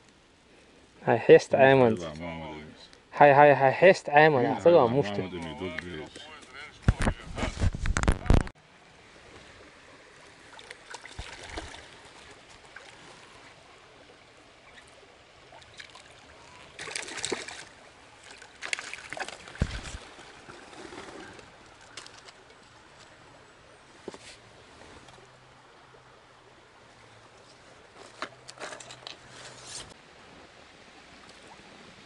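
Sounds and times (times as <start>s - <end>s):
small river flowing: 0.0s - 32.0s.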